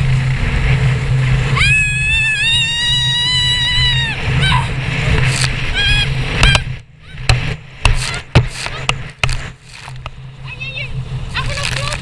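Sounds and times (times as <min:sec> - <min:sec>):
jet ski engine hum: 0:00.0 - 0:12.0
water slapping hull: 0:00.0 - 0:12.0.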